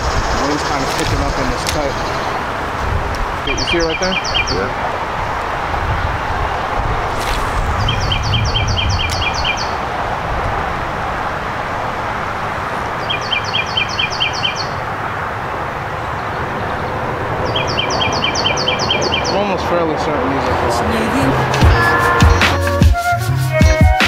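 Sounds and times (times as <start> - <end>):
wind rumbling on microphone: 0.0 - 21.8
songbird singing high notes: 3.5 - 4.6, 7.2 - 9.8, 13.0 - 14.8, 17.5 - 19.4.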